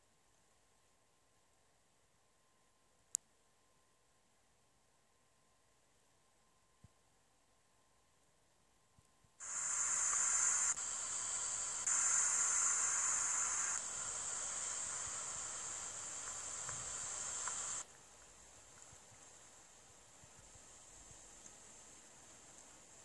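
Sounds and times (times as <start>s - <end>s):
steady high hiss: 9.3s - 23.0s.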